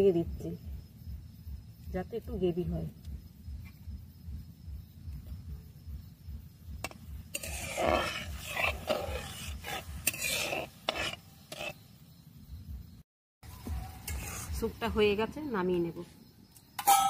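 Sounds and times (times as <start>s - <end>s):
metal spatula scraping a pot: 6.8s - 11.8s, 14.0s - 14.8s.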